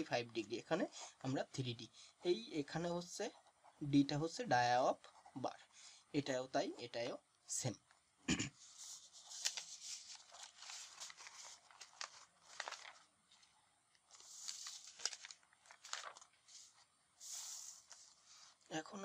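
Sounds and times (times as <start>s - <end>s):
paper rustling and crinkling: 8.6s - 18.7s.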